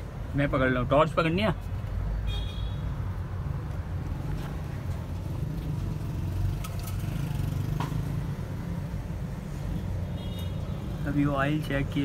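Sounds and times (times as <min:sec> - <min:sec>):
vehicle engines rumbling: 0:00.0 - 0:12.0.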